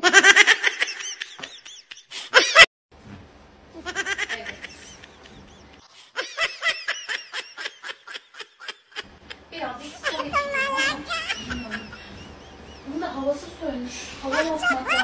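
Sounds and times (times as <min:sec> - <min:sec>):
man laughing: 0:00.2 - 0:02.7, 0:03.8 - 0:09.2, 0:10.0 - 0:13.0, 0:14.2 - 0:15.0.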